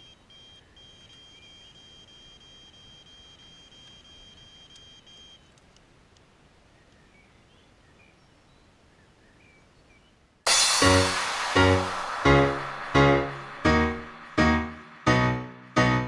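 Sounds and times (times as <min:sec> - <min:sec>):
faint bird chirps: 0:00.0 - 0:05.6
loud music: 0:10.5 - 0:16.0.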